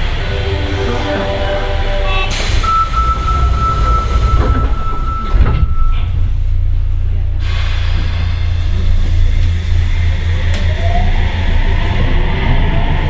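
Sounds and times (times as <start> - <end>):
train motor whine: 0.0 - 13.0
train running gear rumble: 0.0 - 13.0
hiss: 2.3 - 4.4, 7.4 - 12.2.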